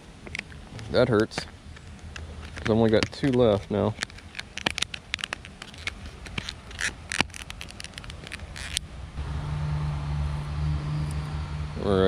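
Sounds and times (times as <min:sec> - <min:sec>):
plastic packaging crinkling: 0:01.8 - 0:08.8
low hum: 0:07.8 - 0:12.0.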